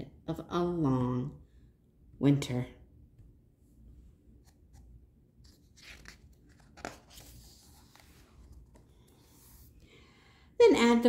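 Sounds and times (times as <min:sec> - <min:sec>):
book page turning: 0:04.4 - 0:09.8.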